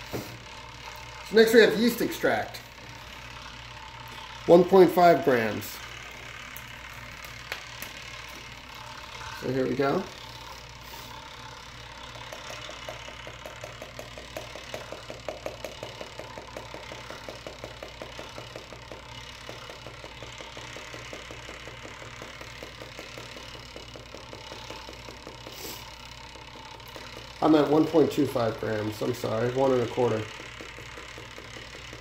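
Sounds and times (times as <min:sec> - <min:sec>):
fast tapping on a container: 0:12.1 - 0:25.7, 0:26.6 - 0:32.0.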